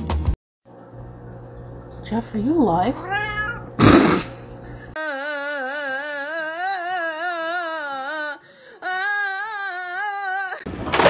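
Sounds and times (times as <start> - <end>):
held vocal notes with vibrato: 5.0 - 10.7.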